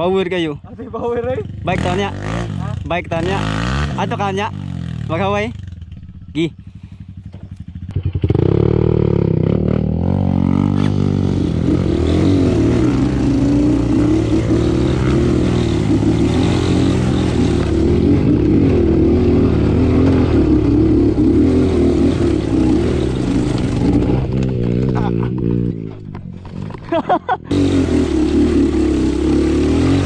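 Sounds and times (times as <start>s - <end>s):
motorcycle engine revving: 1.2s - 30.0s.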